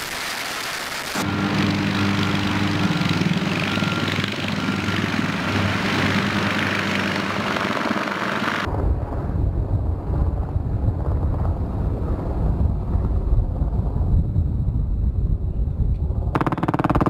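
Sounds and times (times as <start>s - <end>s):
wind in helicopter cabin: 1.0s - 17.0s
helicopters flying low: 1.2s - 9.2s, 15.4s - 17.0s.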